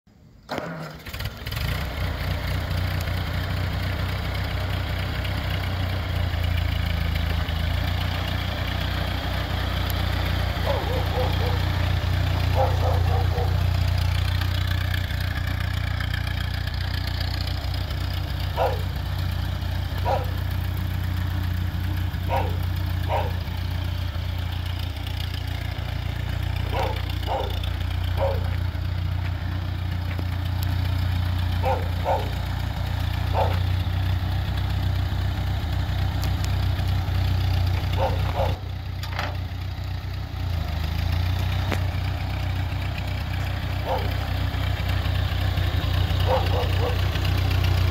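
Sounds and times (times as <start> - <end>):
tractor engine running: 0.1 - 47.9
dog barking: 10.6 - 11.8, 12.5 - 13.7, 18.5 - 18.9, 20.0 - 20.4, 22.3 - 23.5, 26.6 - 27.6, 28.2 - 28.6, 31.6 - 32.4, 33.3 - 33.6, 37.9 - 38.7, 43.8 - 44.2, 46.2 - 47.1.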